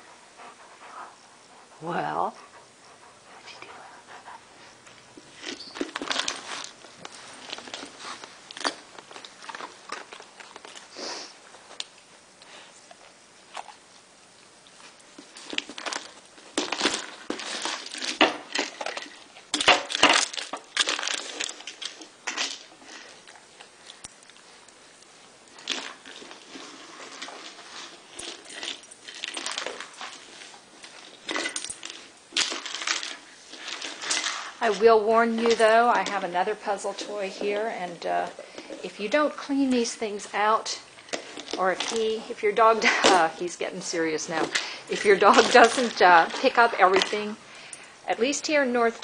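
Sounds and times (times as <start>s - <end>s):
kibble rattling in plastic toy: 44.1s - 47.4s.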